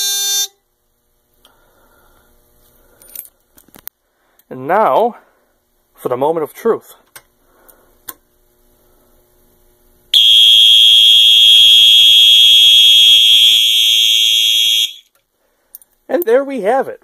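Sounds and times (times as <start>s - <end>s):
high-pitched fire alarm tone: 0.0s - 0.6s, 10.2s - 15.1s.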